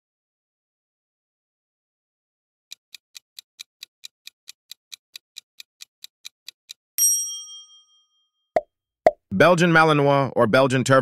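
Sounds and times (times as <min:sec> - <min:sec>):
clock ticks: 0:02.7 - 0:06.8.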